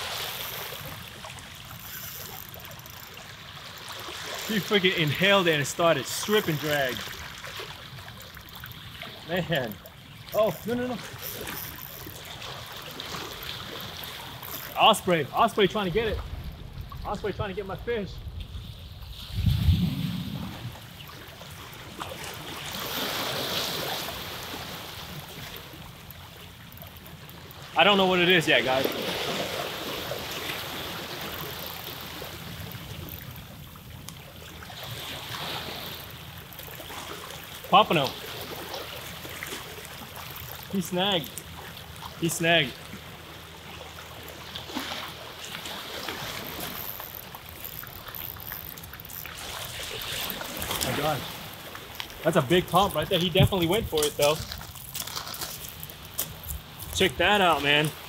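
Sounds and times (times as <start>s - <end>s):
ocean surf washing on beach: 0.0s - 1.0s, 49.4s - 54.6s
wind on microphone: 18.2s - 20.9s.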